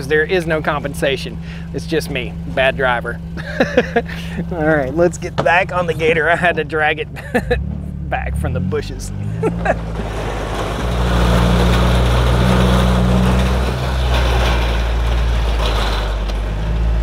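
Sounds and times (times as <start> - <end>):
tyres rushing on gravel: 0.0 - 7.8, 8.4 - 17.0
utility vehicle engine running: 0.0 - 17.0.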